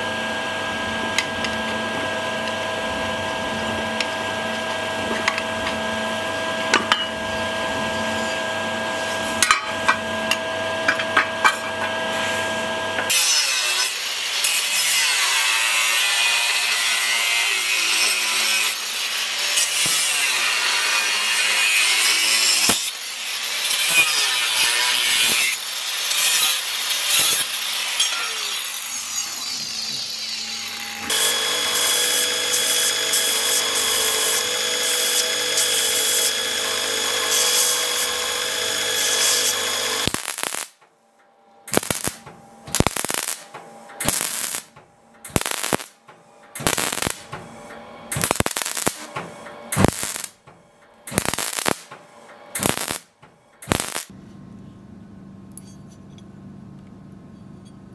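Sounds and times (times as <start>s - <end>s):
belt grinder whine: 0.0s - 40.8s, 41.7s - 50.4s, 51.1s - 54.1s
angle grinder cutting steel: 6.4s - 40.8s, 41.7s - 50.4s, 51.1s - 54.1s
welder crackling bursts: 17.8s - 28.0s, 31.1s - 40.8s, 41.7s - 47.4s, 48.1s - 50.5s, 51.1s - 52.0s, 52.6s - 54.1s.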